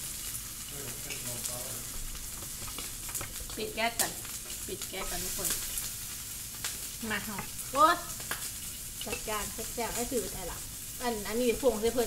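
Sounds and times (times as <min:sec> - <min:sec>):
meat sizzling on grill pan: 0:00.0 - 0:12.0
chopsticks clicking on pan: 0:02.5 - 0:05.7, 0:08.2 - 0:10.1.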